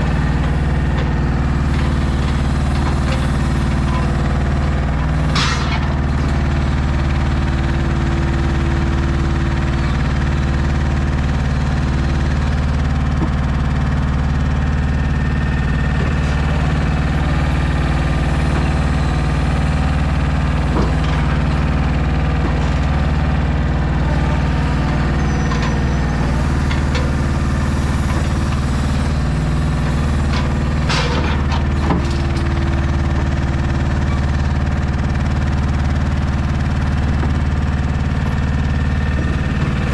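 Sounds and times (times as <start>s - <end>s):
diesel truck engine running: 0.0s - 39.9s
crane knocks: 12.4s - 39.9s.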